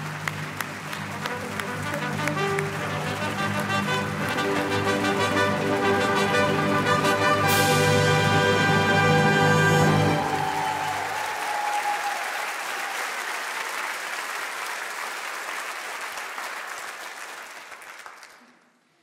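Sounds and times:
audience applauding: 0.0s - 18.8s
orchestra final chord: 1.3s - 10.7s.

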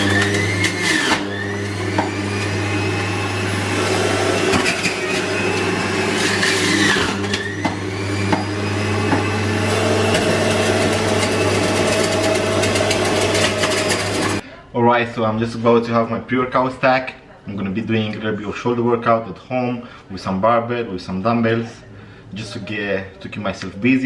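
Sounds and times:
crackly grinding of fruit: 0.0s - 14.4s
electric juicer motor whine: 0.0s - 14.4s.

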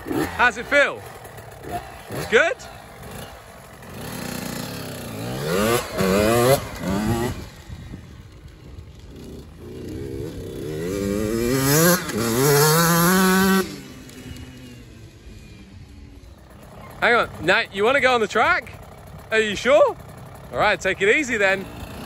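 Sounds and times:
dirt bike engine revving: 0.0s - 22.0s.

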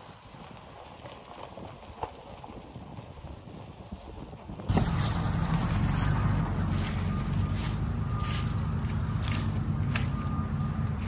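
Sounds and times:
faint crunching rumble: 0.0s - 11.0s
heavy equipment engine running: 4.7s - 11.0s.

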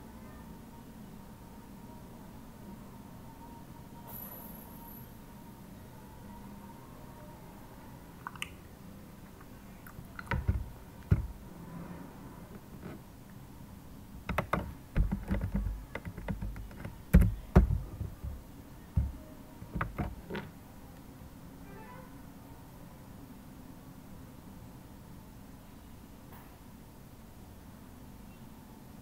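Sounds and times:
keyboard keys clicking: 10.2s - 11.4s, 14.2s - 18.4s, 19.0s - 20.5s.

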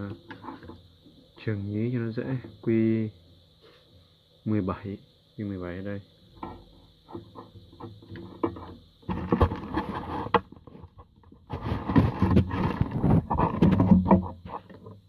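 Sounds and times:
rustling and clattering on workbench: 0.0s - 0.9s, 6.4s - 15.0s.

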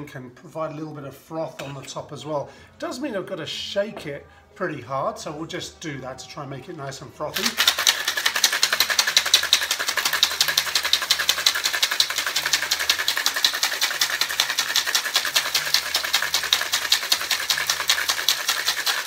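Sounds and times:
ice rattling in cocktail shaker: 7.3s - 19.0s.

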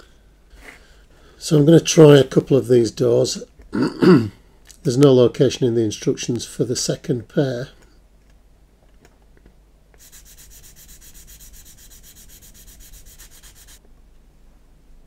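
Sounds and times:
sanding stick rubbing plastic: 10.0s - 13.8s.

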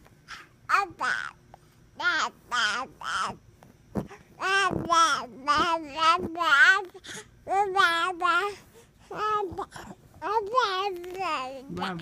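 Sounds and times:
baby babbling: 4.4s - 12.0s.

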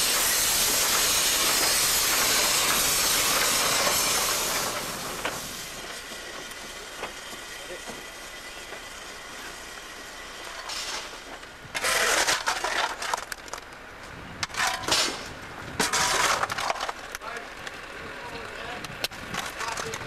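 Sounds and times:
coal lumps clattering: 11.8s - 13.6s, 14.5s - 17.1s.

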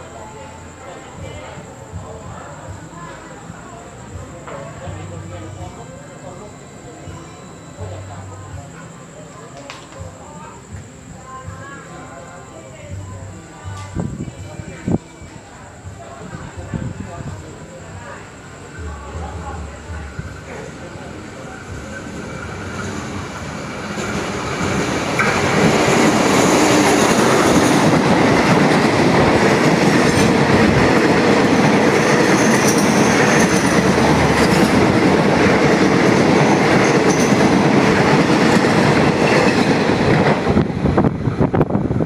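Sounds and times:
train coaches rolling past: 14.5s - 42.0s
diesel locomotive passing: 17.5s - 42.0s.

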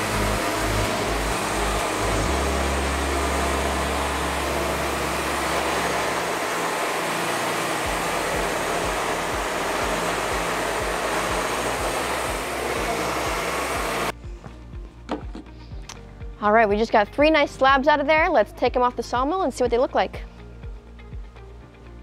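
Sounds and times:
band saw blade cutting wood: 0.0s - 14.1s
low hum: 0.0s - 15.1s.

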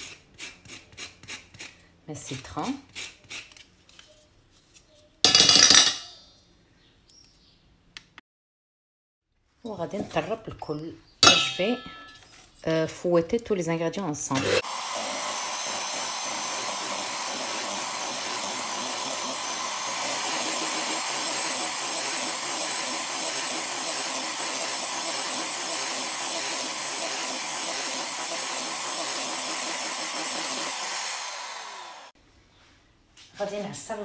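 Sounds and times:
electric hand mixer whirring: 14.3s - 32.2s.

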